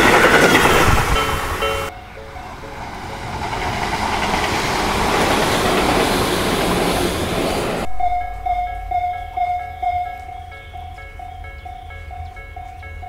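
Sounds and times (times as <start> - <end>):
level crossing warning bell ringing: 0.0 - 3.8, 7.8 - 13.0
electric train passing: 0.0 - 13.0.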